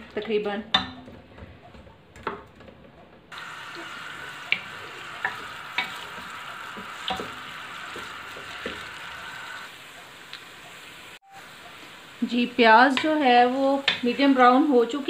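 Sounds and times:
onions sizzling in hot oil: 3.3s - 15.0s.

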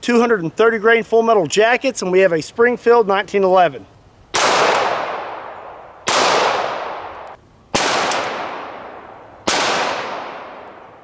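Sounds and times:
pistol shots with echo: 4.3s - 11.0s.

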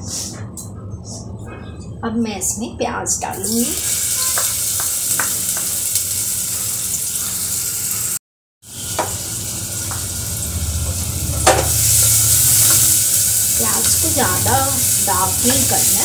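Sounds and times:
onions sizzling in hot oil: 3.4s - 16.0s.

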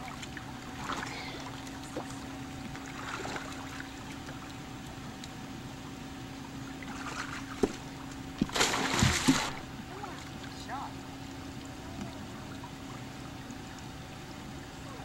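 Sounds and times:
steady low hum: 0.0s - 15.0s
splash in swimming pool: 8.4s - 9.7s.

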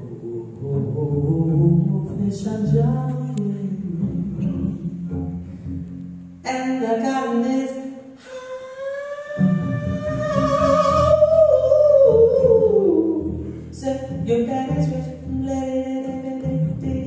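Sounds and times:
double bass playing low notes: 0.0s - 6.8s, 9.3s - 17.0s
woman singing jazz: 6.4s - 17.0s.

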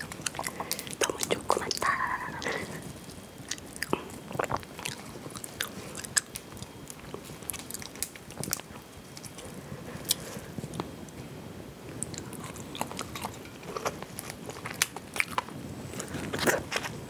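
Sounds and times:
crayfish shells cracking: 0.0s - 2.6s, 3.4s - 9.4s, 12.0s - 17.0s
close chewing: 0.0s - 10.9s, 11.9s - 17.0s.

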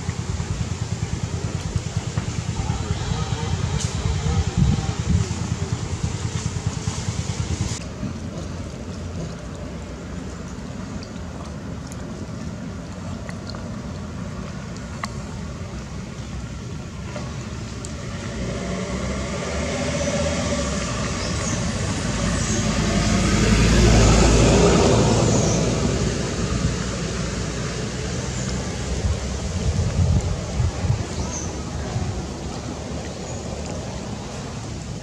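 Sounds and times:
outdoor background noise: 0.0s - 35.0s
vehicle passing by: 17.1s - 35.0s.

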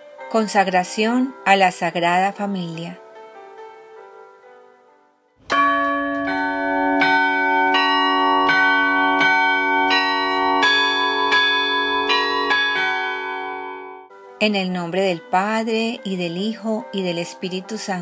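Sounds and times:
church bells ringing: 5.4s - 14.1s.

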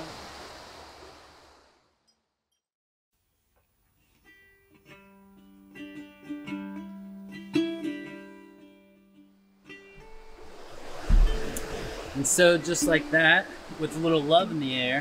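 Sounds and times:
plucked string music: 4.3s - 15.0s.

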